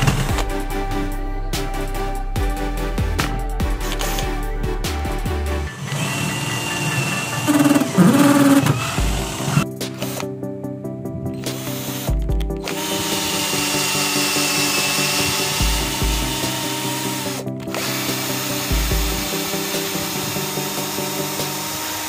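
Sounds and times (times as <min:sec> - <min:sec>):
power drill cutting into wood: 0:05.7 - 0:10.2, 0:11.4 - 0:22.0.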